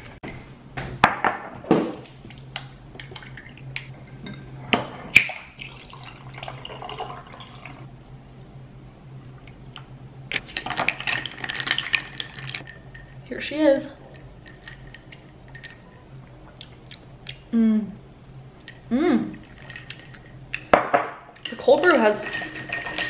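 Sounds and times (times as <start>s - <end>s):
steady low hum: 0.0s - 23.0s
straw stirring ice: 10.4s - 16.0s, 18.6s - 20.7s, 21.3s - 23.0s
ice cubes clinking in a glass: 10.5s - 13.2s, 21.4s - 23.0s.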